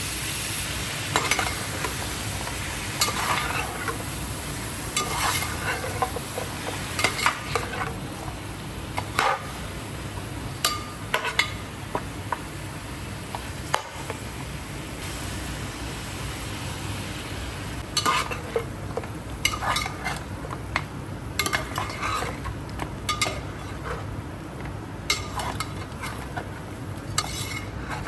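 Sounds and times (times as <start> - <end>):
food sizzling in hot oil: 0.0 - 28.0
spoon scraping against pot: 5.0 - 8.0, 10.7 - 11.6, 18.0 - 18.7, 19.4 - 20.3, 21.4 - 24.1, 25.1 - 28.0.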